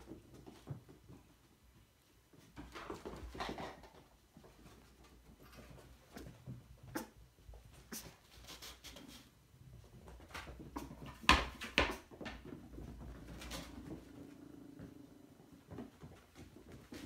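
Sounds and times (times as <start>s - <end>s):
light knocks and clatters: 2.3s - 7.7s.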